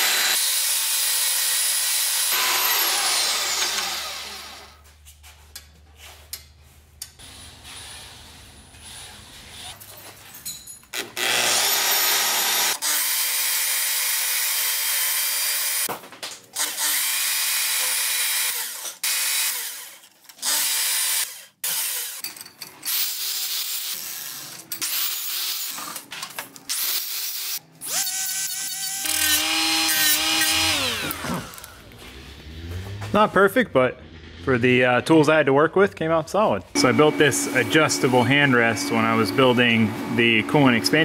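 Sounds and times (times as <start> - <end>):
bandsaw cutting metal: 0.0 - 4.8, 10.9 - 15.9, 16.6 - 26.0, 26.7 - 31.8, 36.8 - 41.0
die grinder spinning: 0.0 - 4.8, 11.0 - 15.9, 26.7 - 31.9
steady motor tone: 36.8 - 41.0.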